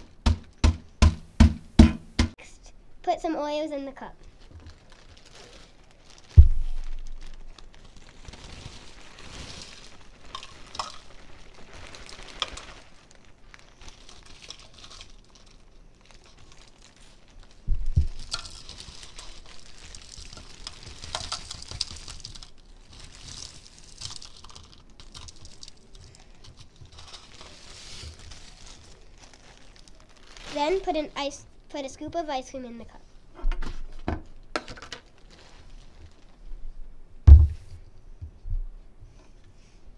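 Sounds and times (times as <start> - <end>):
crumbs pattering into cups: 4.2 - 31.0
plastic bag rustling: 4.2 - 31.4, 33.6 - 36.6
dull thump: 6.4 - 6.9, 37.2 - 37.8.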